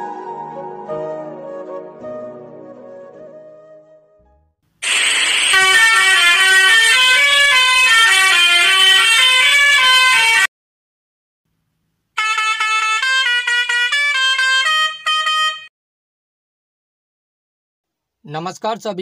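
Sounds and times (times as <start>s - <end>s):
musical truck horn melody: 5.4s - 10.5s, 12.2s - 15.7s.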